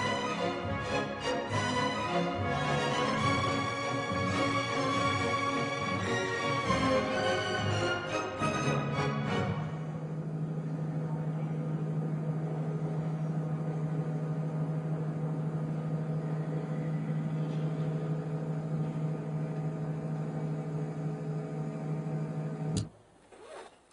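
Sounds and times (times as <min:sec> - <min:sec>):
low electrical hum: 0:00.0 - 0:23.9
click: 0:22.7 - 0:22.9.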